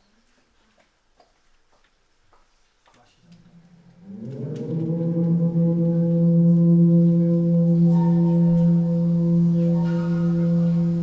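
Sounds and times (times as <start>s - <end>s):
low musical drone: 3.2s - 11.0s.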